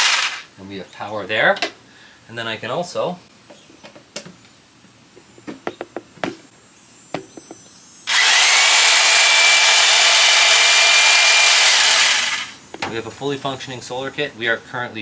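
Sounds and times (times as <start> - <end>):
jigsaw running with high whine: 0.0 - 0.5, 8.1 - 12.6.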